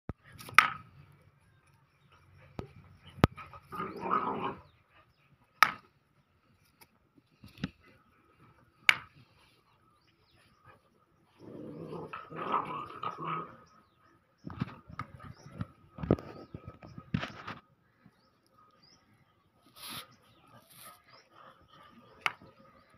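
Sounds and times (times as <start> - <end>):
puppies play-fighting and vocalizing: 6.2 - 22.9.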